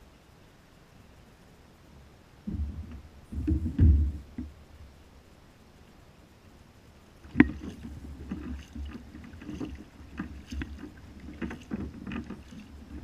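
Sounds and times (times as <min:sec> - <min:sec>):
gear knocking on kayak: 0:07.3 - 0:13.0.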